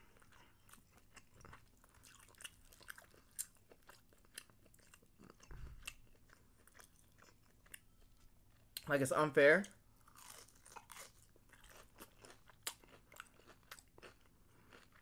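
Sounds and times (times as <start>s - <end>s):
close chewing clicks and crunches: 0.0s - 8.9s, 10.0s - 15.0s.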